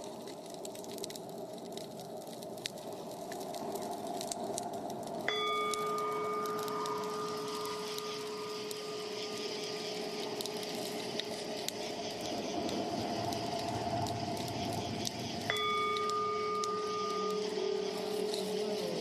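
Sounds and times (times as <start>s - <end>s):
clicks and crackles: 0.0s - 19.0s
low rumble: 3.4s - 19.0s
hissing drone: 5.2s - 19.0s
faint held tone: 5.3s - 11.5s, 15.4s - 19.0s.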